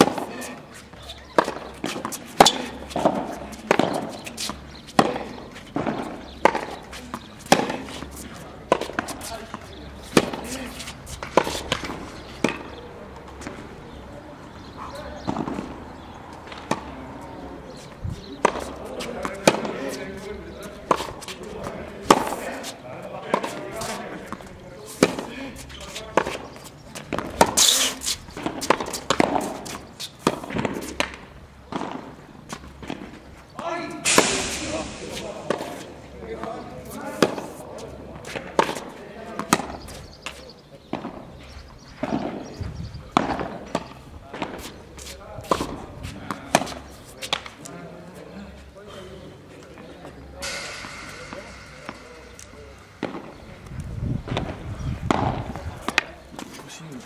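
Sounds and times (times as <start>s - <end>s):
tennis balls struck by rackets: 0.0s - 47.9s, 49.6s - 56.6s
scraping hiss: 34.1s - 35.9s, 50.4s - 53.6s.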